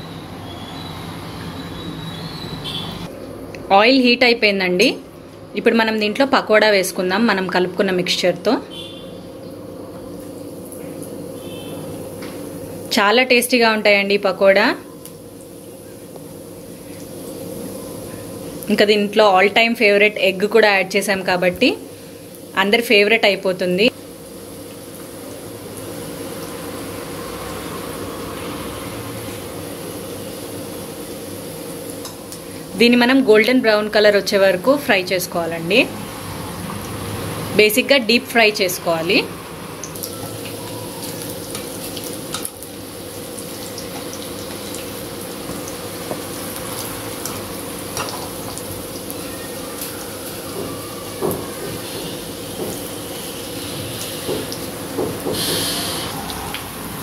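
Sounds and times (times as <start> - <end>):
batter sizzling in hot oil: 14.3 - 19.1, 19.7 - 22.8, 23.8 - 57.0.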